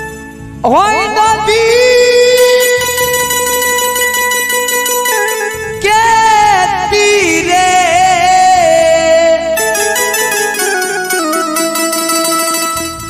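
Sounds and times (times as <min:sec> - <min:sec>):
electronic keyboard accompaniment: 0:00.0 - 0:13.0
man singing into microphone: 0:00.6 - 0:04.1, 0:05.6 - 0:10.1.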